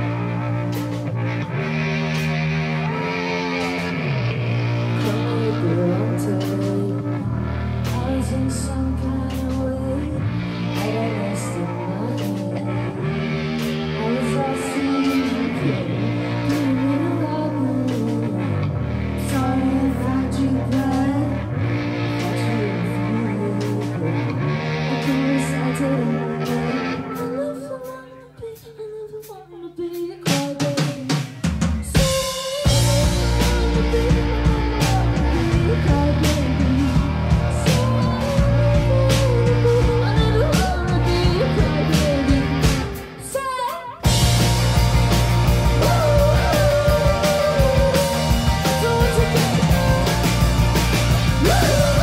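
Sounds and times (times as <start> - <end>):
live rock band playing: 0.0 - 52.0
woman singing: 4.8 - 52.0.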